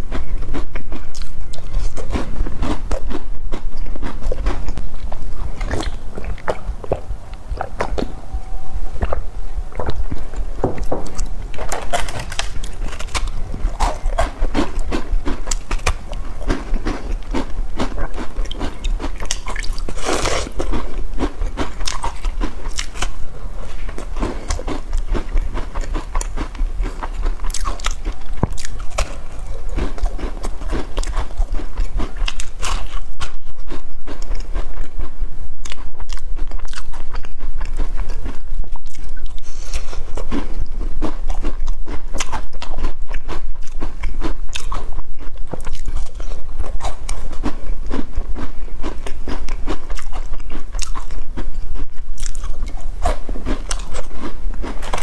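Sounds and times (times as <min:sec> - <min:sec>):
mouth sounds: 0:00.0 - 0:22.2
biscuits crunching being chewed: 0:00.0 - 0:55.0.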